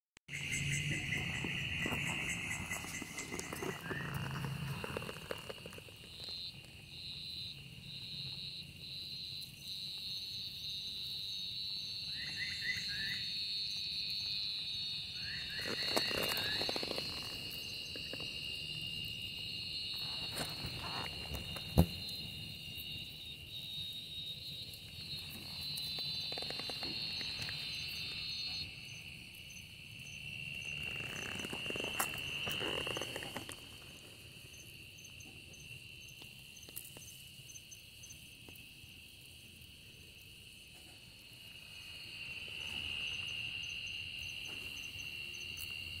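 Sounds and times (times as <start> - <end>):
insects trilling: 0.3 - 46.0
rustling: 1.8 - 6.4.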